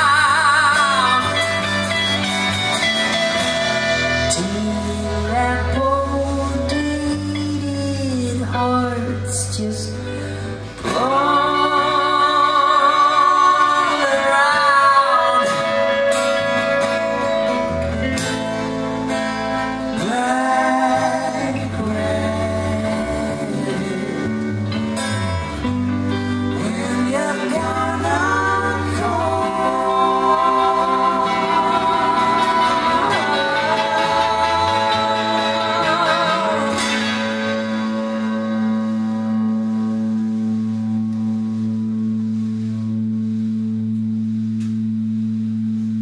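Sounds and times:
bass guitar: 0.0 - 46.0
drums: 0.0 - 46.0
guitars: 0.0 - 46.0
person singing long notes: 4.0 - 17.8, 19.8 - 24.8, 26.4 - 41.8.

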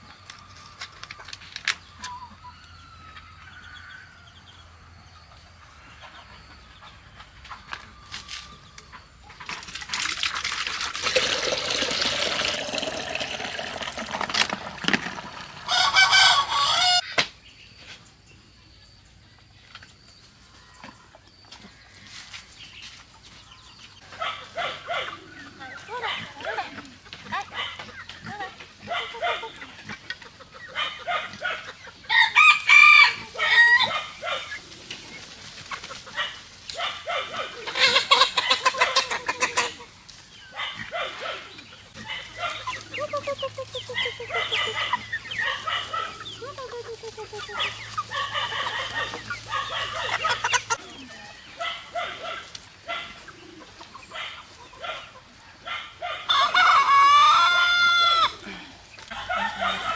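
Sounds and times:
chickens clucking: 0.0 - 59.9
rooster crowing: 15.7 - 17.0, 32.1 - 34.1, 56.0 - 58.4, 59.1 - 59.9.

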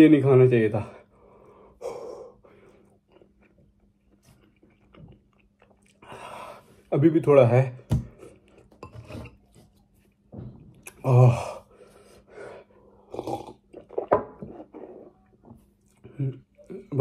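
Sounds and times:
man breathing heavily: 1.0 - 3.0
man groaning: 11.0 - 11.6.

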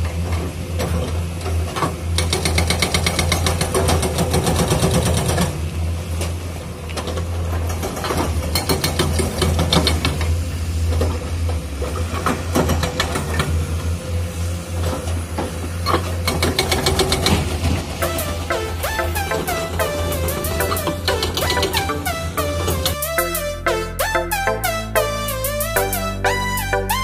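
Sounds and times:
hydraulic breaker hammering rock: 2.2 - 5.6, 8.5 - 10.2, 15.9 - 17.8
diesel engine drone: 13.0 - 27.0.

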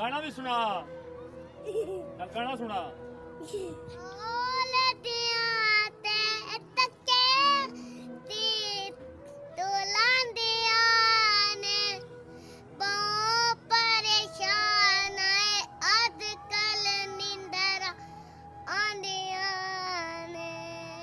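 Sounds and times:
boy singing: 3.5 - 9.0, 9.6 - 12.1, 12.8 - 18.0, 18.6 - 21.0.

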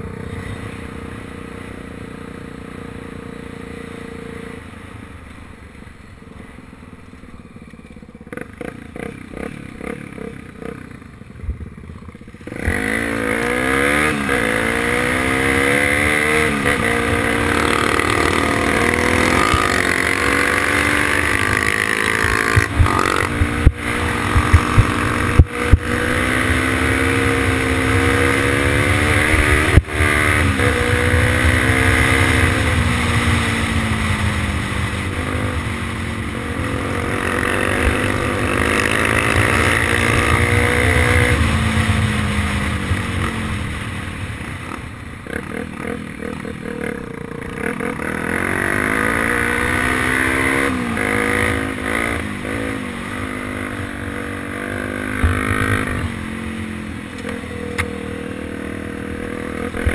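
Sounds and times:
motorcycle engine revving: 7.5 - 59.9
wind rumble on microphone: 22.2 - 26.1.

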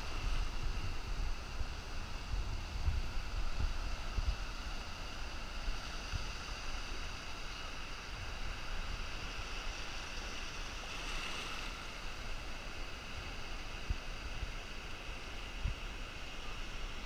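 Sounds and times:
ocean surf washing: 0.0 - 17.0
wind on microphone: 0.0 - 17.0.

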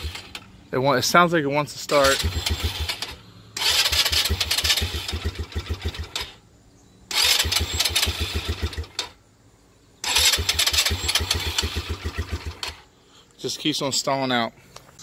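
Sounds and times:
engine cranking on starter: 0.0 - 0.5, 1.8 - 6.4, 7.1 - 9.2, 10.0 - 12.8.

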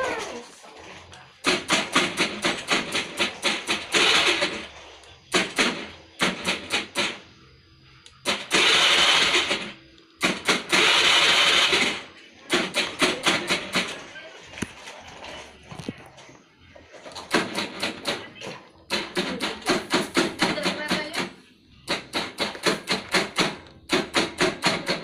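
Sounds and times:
starter motor turning over: 3.7 - 4.7, 8.3 - 12.1.

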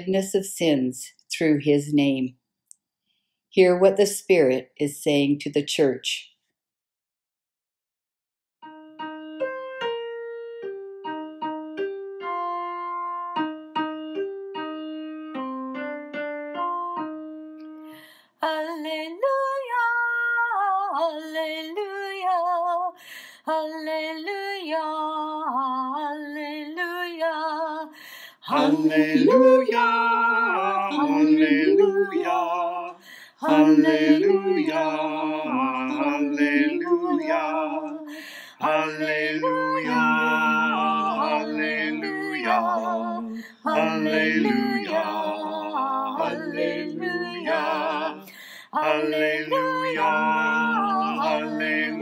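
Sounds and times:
piano hymn: 8.6 - 22.8, 23.8 - 52.0
held melody with vibrato: 28.5 - 37.7, 38.7 - 52.0
sung hallelujah response: 28.5 - 52.0.

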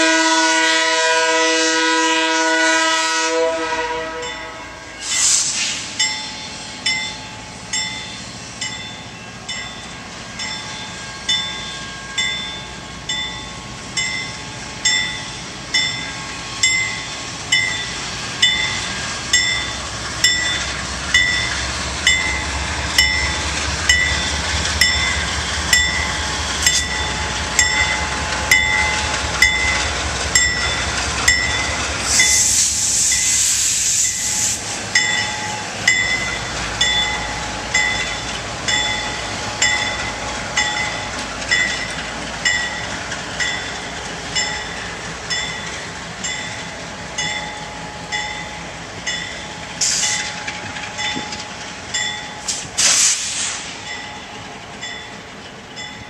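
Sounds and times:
diesel locomotives rumbling: 0.0 - 56.0
railroad bell ringing: 3.0 - 5.3, 6.0 - 33.4, 34.9 - 52.7, 53.8 - 56.0
air hiss: 5.0 - 6.7, 32.0 - 35.0, 49.8 - 50.3, 52.4 - 54.1.

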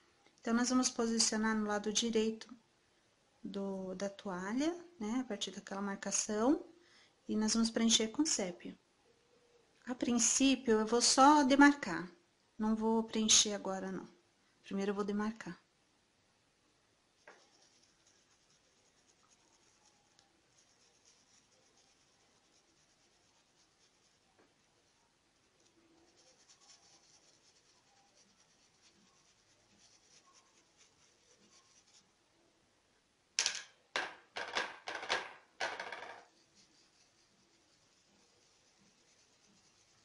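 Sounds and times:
brush scratching on fabric: 17.2 - 32.1, 36.2 - 40.0
loud brush scrubbing strokes: 36.4 - 40.0.

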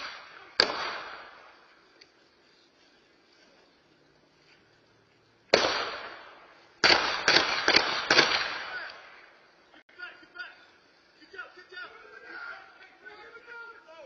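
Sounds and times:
echoing gunshots: 0.0 - 1.7, 5.5 - 9.4.

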